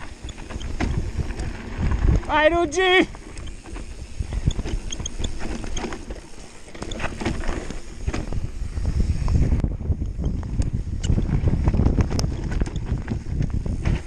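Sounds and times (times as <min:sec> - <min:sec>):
bike clattering over bumps: 0:00.0 - 0:02.4
bike tyres rolling over dirt: 0:00.0 - 0:14.0
wind rumbling on microphone: 0:00.0 - 0:14.0.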